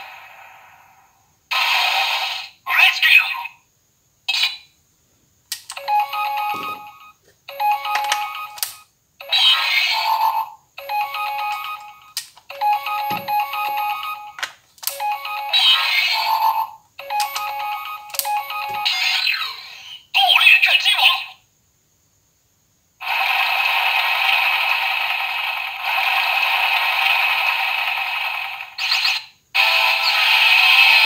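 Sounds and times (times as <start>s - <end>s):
sharp clicks: 5.5s - 5.8s
toy beeping melody: 5.7s - 19.6s.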